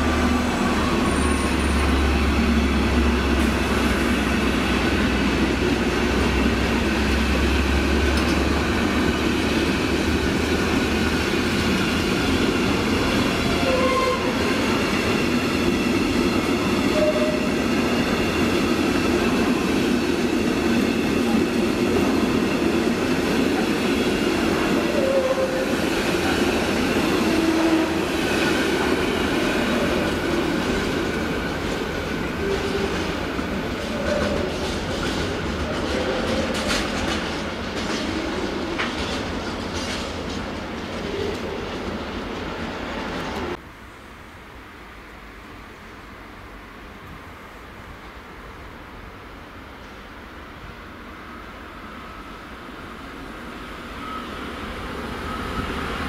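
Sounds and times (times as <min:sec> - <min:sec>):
train wheels clattering on rails: 0:00.1 - 0:43.6.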